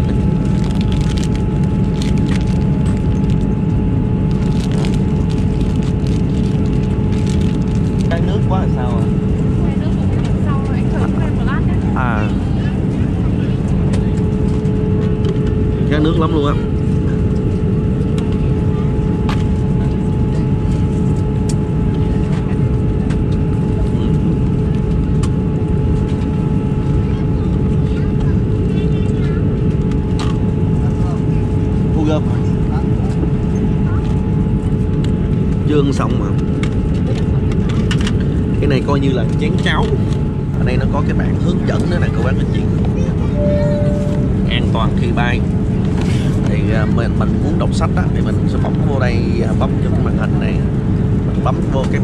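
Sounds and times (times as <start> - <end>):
airliner cabin rush and hum: 0.0 - 52.0
plastic sachets crinkling: 0.6 - 3.4, 4.3 - 8.1.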